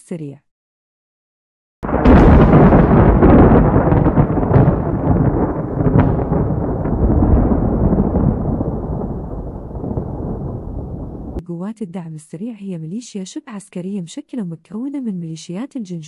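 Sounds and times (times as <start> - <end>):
crackling pops: 1.8 - 11.4
deep explosion rumble: 1.8 - 11.4.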